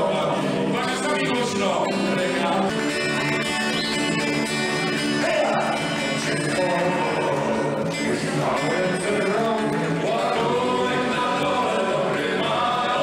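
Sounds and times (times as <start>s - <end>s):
acoustic guitar: 0.0s - 13.0s
men singing together: 5.2s - 13.0s.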